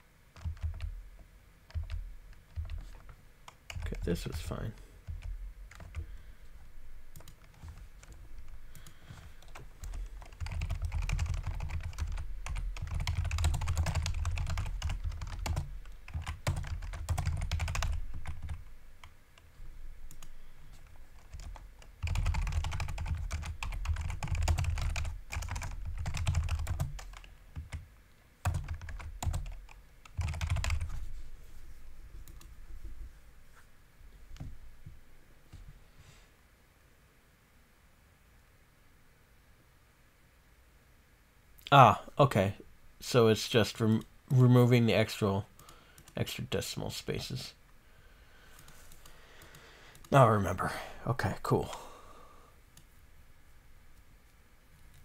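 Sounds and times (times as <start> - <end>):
typing on computer keyboard: 0.4 - 1.0, 1.7 - 4.4, 5.0 - 6.1, 7.1 - 19.1, 21.2 - 27.8, 28.4 - 30.9.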